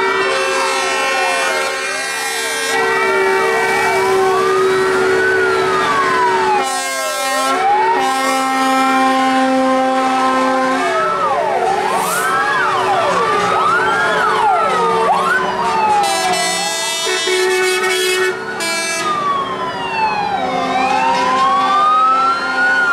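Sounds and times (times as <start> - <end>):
fire truck sirens wailing: 0.0 - 22.9
held horn tones: 15.7 - 19.1.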